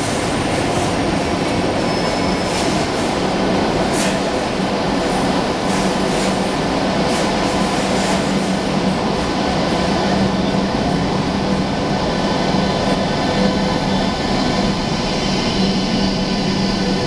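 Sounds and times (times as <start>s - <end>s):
train wheels rumbling on rail: 0.0s - 17.0s
faint squeal: 1.7s - 2.8s.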